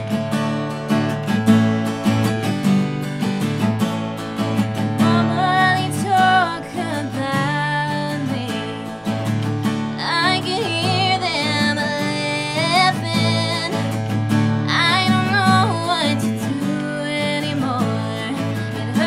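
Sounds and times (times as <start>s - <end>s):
acoustic guitar strumming: 0.0s - 19.0s
woman singing: 5.0s - 19.0s.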